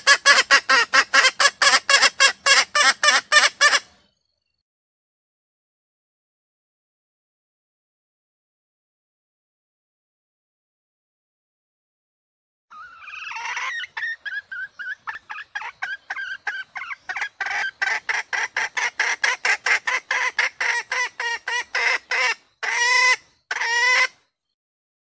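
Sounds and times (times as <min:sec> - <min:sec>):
hen clucking and calling: 0:00.0 - 0:04.0, 0:12.7 - 0:24.2.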